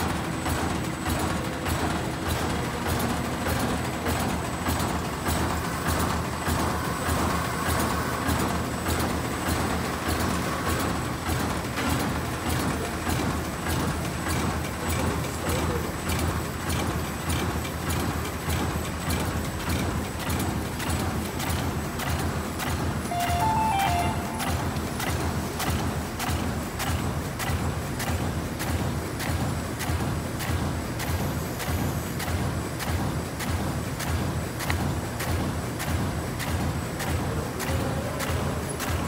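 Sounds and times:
machine clicks and knocks: 0.0s - 23.1s, 24.4s - 39.0s
mechanical hum: 0.0s - 39.0s.

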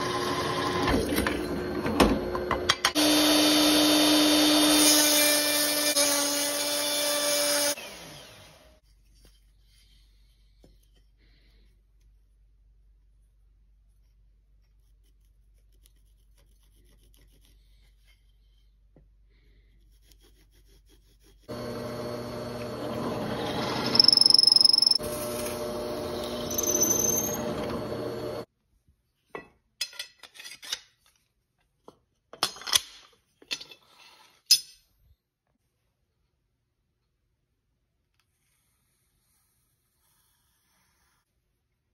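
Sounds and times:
drill press boring into wood: 21.5s - 28.4s
drill bit squealing: 22.7s - 25.0s, 25.6s - 28.4s.

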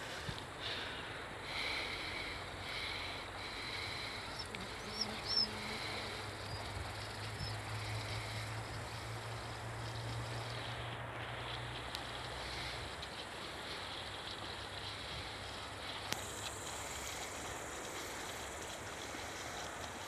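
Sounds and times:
low steady hum: 0.0s - 20.0s
steady background hiss: 0.0s - 20.0s
bird chirps: 4.3s - 5.6s.

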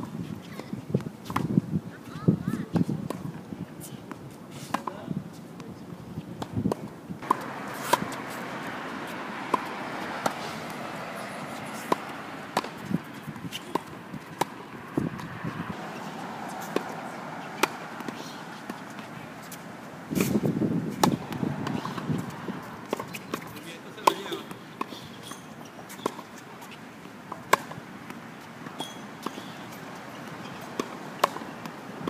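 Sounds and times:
tennis ball hit with racket: 0.5s - 1.5s, 6.4s - 32.0s
ball bouncing on hard court: 7.2s - 19.6s, 20.2s - 24.6s.

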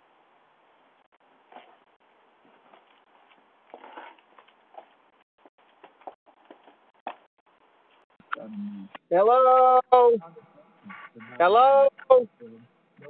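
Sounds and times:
microphone hiss: 0.0s - 3.2s, 7.1s - 13.0s
footsteps on concrete: 2.4s - 7.3s.

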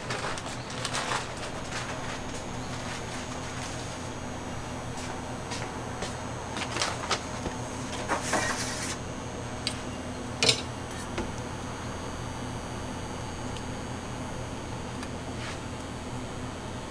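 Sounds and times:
paper rustle: 0.0s - 4.1s, 6.6s - 7.4s
low hum of kitchen equipment: 0.0s - 16.9s.

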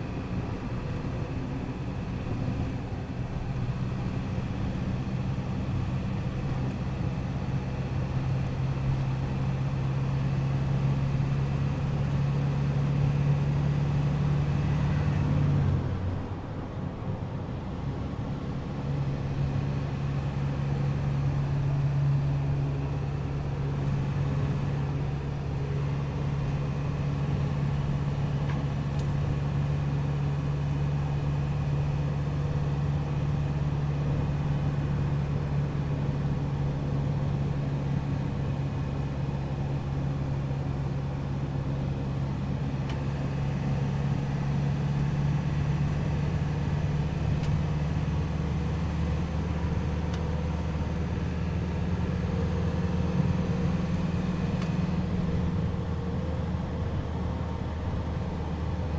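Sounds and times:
diesel truck engine running: 0.0s - 58.9s
road and tyre noise: 0.0s - 58.9s.

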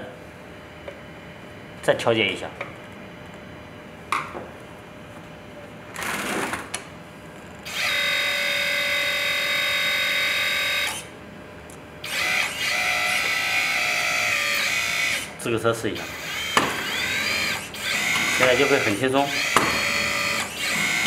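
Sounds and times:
electric hydraulic pump whining: 7.6s - 11.1s, 12.0s - 21.0s.

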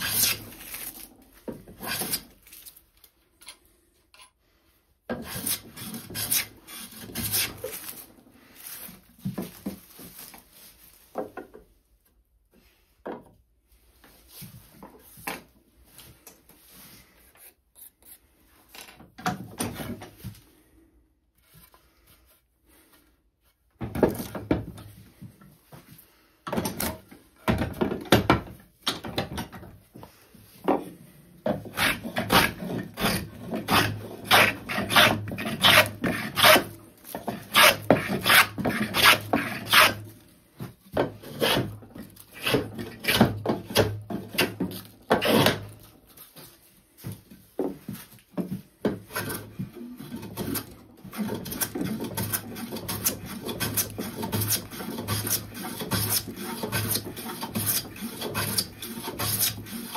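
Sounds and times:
hand plane rasping on wood: 0.0s - 0.8s, 5.1s - 7.8s, 31.5s - 40.1s, 41.2s - 45.6s, 49.0s - 59.9s.

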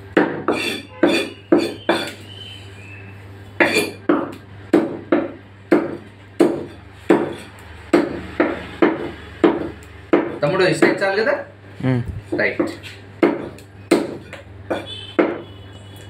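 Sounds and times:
cleaver chopping on wooden block: 0.1s - 2.2s, 3.6s - 11.0s, 12.3s - 15.5s.

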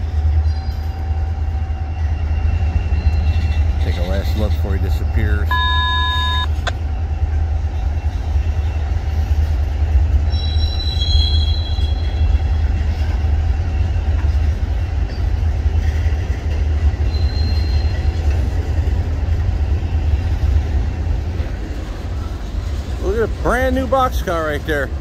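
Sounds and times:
freight train rolling past: 0.0s - 25.0s
high wheel squeal: 10.3s - 12.2s, 17.0s - 18.1s.

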